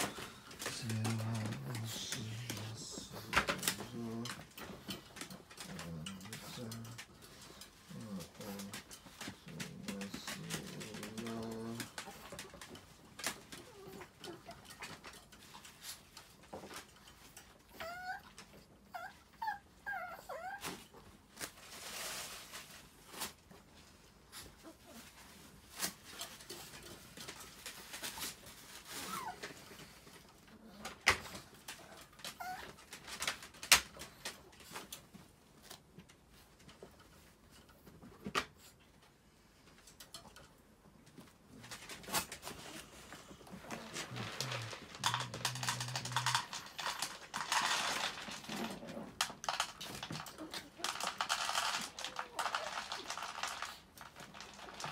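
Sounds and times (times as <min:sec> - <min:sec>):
dog whimpering: 0:17.7 - 0:20.7, 0:31.9 - 0:32.8.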